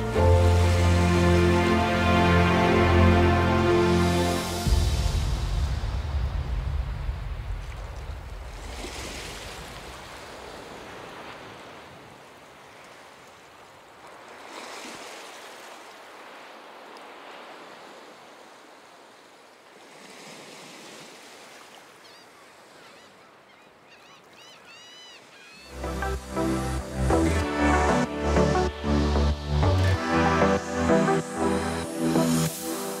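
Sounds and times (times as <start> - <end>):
background music: 0.0 - 7.4, 25.7 - 33.0
small waves breaking on shore: 0.0 - 26.5.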